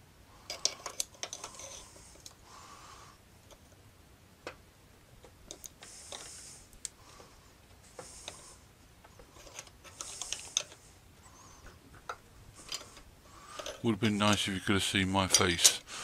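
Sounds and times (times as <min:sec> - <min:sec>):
hand tool scraping: 0:00.5 - 0:02.2.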